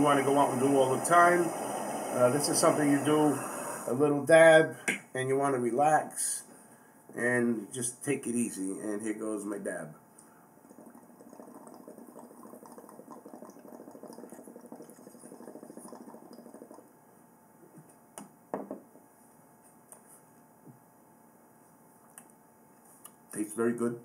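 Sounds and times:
water bubbling in glass pipe: 0:10.6 - 0:16.9.

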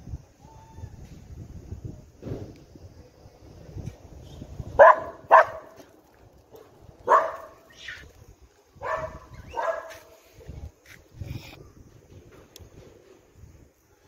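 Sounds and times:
dog barking: 0:04.8 - 0:05.8, 0:07.0 - 0:07.7, 0:08.8 - 0:10.1.

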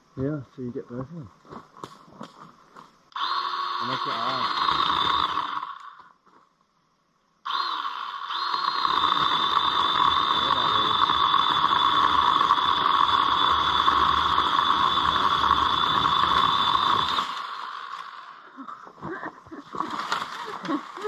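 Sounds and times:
electric saw cutting branch: 0:03.1 - 0:06.0, 0:07.5 - 0:18.5, 0:19.8 - 0:21.0.

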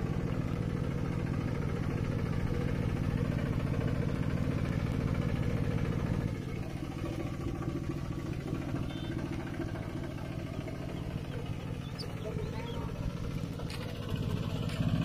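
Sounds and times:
tractor engine chugging: 0:00.0 - 0:15.0.

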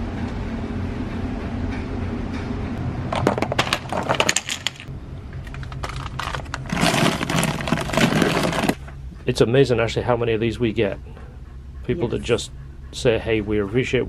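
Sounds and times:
low steady hum: 0:00.0 - 0:14.0
metal parts clinking in plastic bag: 0:05.5 - 0:08.8.

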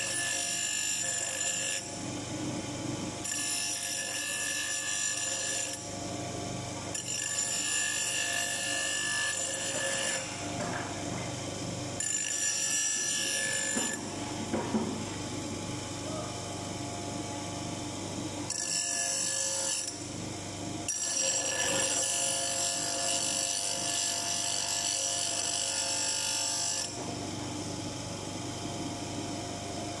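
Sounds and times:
bench grinder grinding metal: 0:00.0 - 0:01.9, 0:03.2 - 0:05.8, 0:06.9 - 0:11.2, 0:12.0 - 0:14.6, 0:18.4 - 0:20.0, 0:20.8 - 0:27.0
grinder motor hum: 0:00.0 - 0:20.2.

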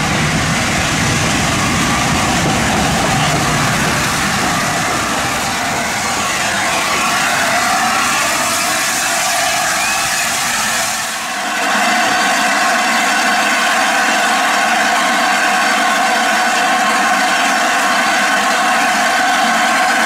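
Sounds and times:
steam hiss: 0:00.0 - 0:15.3
steam locomotive approaching: 0:00.0 - 0:20.0.

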